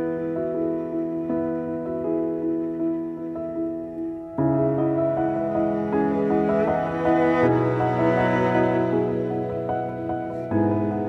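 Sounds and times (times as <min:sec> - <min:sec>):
slow music of sustained notes: 0:00.0 - 0:11.0.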